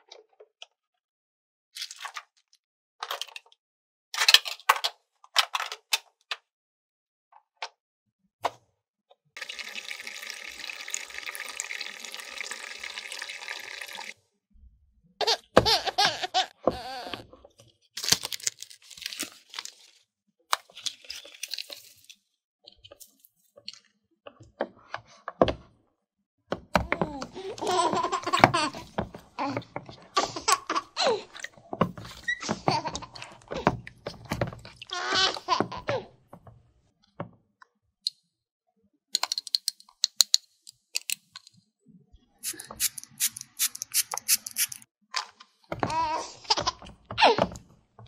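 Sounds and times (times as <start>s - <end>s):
plastic toy pieces clicking: 39.2s - 41.5s, 42.5s - 44.8s.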